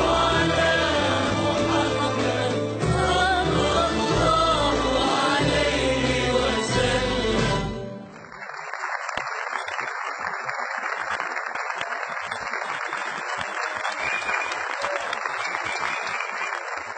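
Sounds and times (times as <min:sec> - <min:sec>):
audience applauding: 0:08.1 - 0:16.9.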